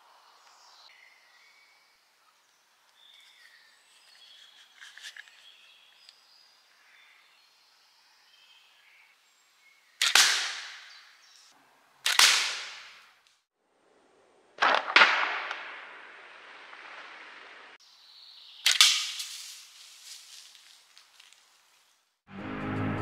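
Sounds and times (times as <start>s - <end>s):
slingshot cracks: 10.0s - 11.1s, 12.0s - 13.4s, 14.6s - 16.0s, 18.6s - 20.2s.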